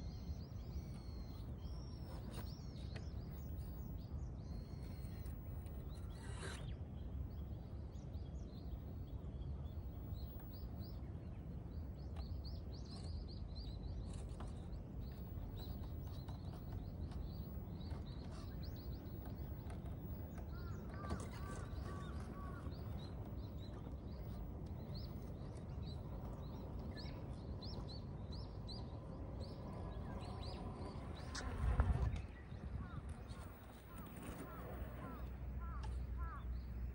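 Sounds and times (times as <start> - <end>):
small birds chirping: 0.0 - 36.9
wind rumble: 14.1 - 36.9.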